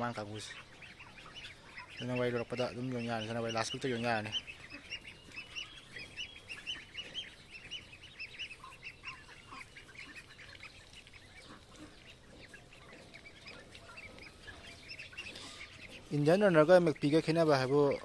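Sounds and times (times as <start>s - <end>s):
ducklings peeping: 0.0s - 18.0s.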